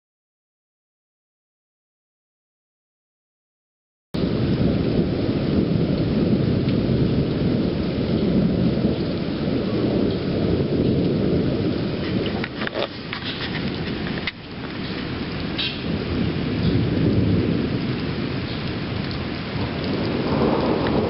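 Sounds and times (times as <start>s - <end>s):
steady rain: 4.2s - 21.0s
thunder rumbling: 4.2s - 21.0s.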